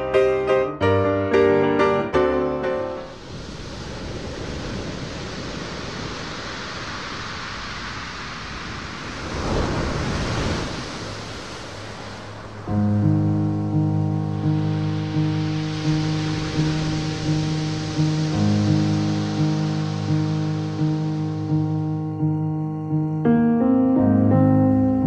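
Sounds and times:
soft piano music: 0:00.0 - 0:03.2, 0:12.6 - 0:25.0
steady rushing noise: 0:01.9 - 0:22.4.

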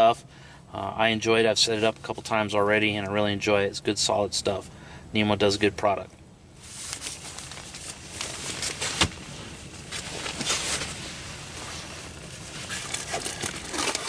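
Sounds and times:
fabric bag rustling: 0:06.6 - 0:14.0.

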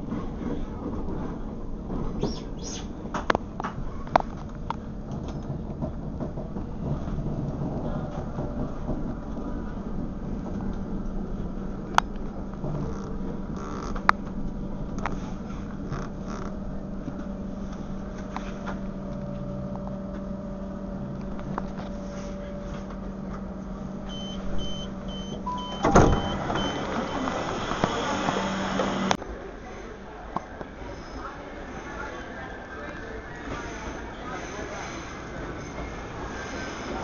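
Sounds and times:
steady low hum: 0:00.0 - 0:32.1
door-closing warning beeps: 0:24.1 - 0:29.2.

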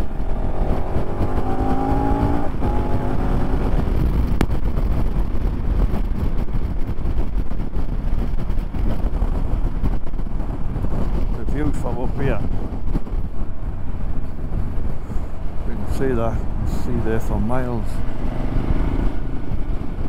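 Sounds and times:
motorcycle engine accelerating: 0:00.0 - 0:11.3, 0:17.9 - 0:20.0
wind rushing: 0:00.0 - 0:20.0.

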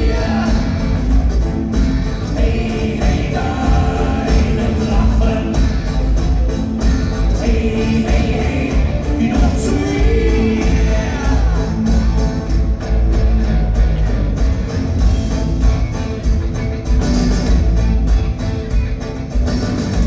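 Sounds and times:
singing: 0:00.0 - 0:01.2, 0:02.3 - 0:06.2, 0:07.3 - 0:12.3
live rock band: 0:00.0 - 0:20.0.

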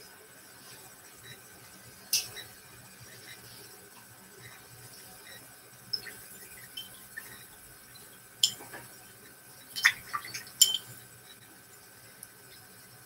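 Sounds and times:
paintbrush clinking on container: 0:08.4 - 0:08.8, 0:09.8 - 0:11.0.

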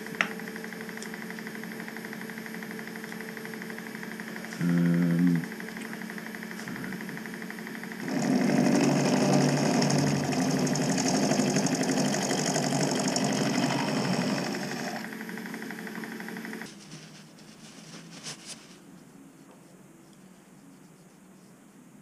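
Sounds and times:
spindle whine: 0:02.2 - 0:19.5
loud rough metal cutting: 0:08.0 - 0:15.1.

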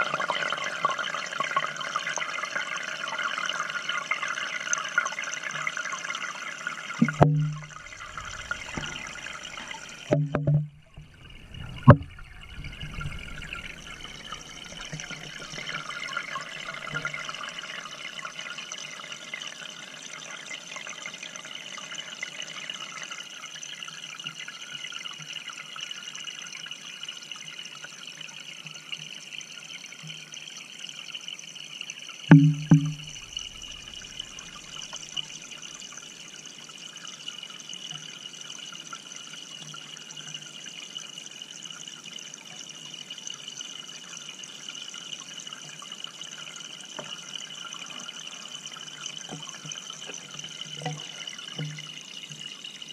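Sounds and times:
water trickling in aquarium: 0:00.0 - 0:52.9
dull knocks: 0:07.0 - 0:15.5, 0:32.3 - 0:34.4.

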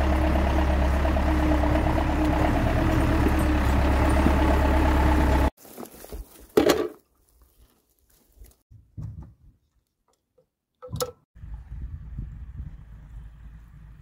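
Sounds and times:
tractor engine running: 0:00.0 - 0:05.6.

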